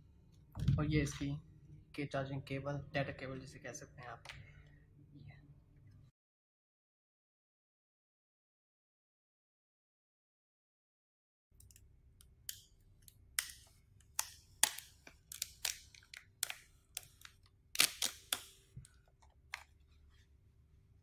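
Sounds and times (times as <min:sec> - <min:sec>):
plastic film peeling: 0:13.4 - 0:20.2.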